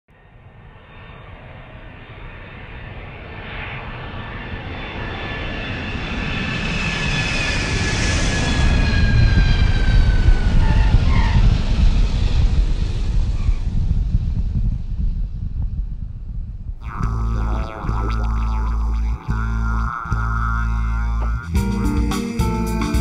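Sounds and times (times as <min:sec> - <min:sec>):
aeroplane engines passing over: 0:00.2 - 0:15.5.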